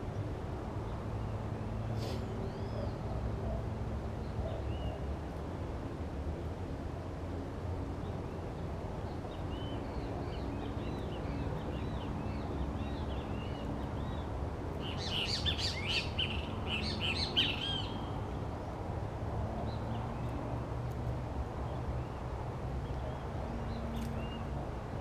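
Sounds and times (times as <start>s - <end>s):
birds chirping: 8.0s - 18.3s.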